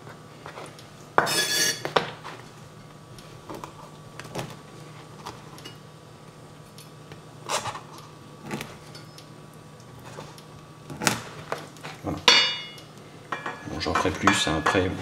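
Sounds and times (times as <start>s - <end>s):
low steady hum: 0.0s - 15.0s
bread crust crunching: 7.1s - 12.2s.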